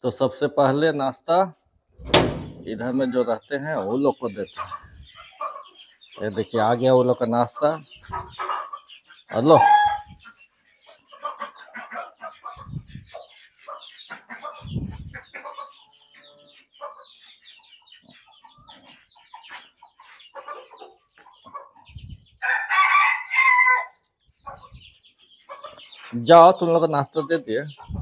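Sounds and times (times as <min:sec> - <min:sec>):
dull thumps: 0:02.0 - 0:02.9
chickens clucking: 0:02.0 - 0:28.0
rooster crowing: 0:22.4 - 0:23.9.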